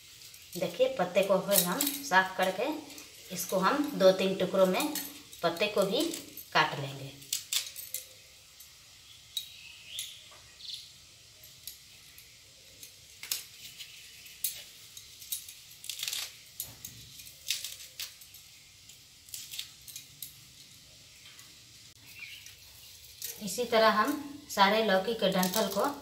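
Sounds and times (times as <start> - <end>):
light clinks: 1.4 - 10.2.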